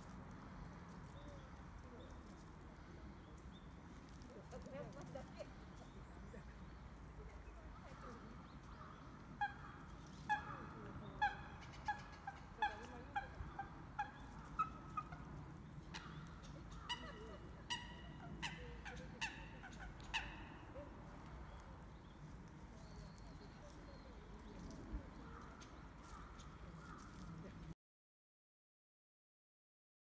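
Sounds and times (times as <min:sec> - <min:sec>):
coots honking calls: 0:08.0 - 0:21.3.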